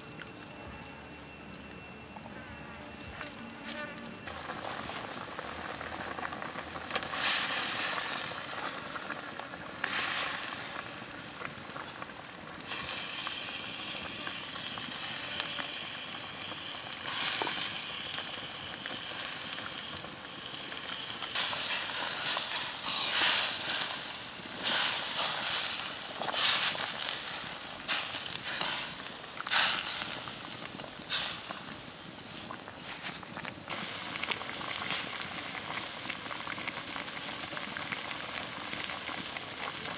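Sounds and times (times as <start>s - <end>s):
soup boiling hard: 4.2s - 39.9s.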